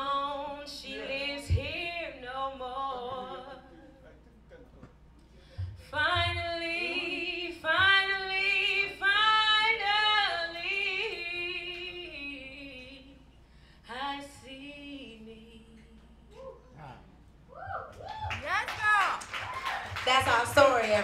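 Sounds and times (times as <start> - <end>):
woman singing: 0.0 - 3.7, 5.8 - 13.2, 13.9 - 16.4.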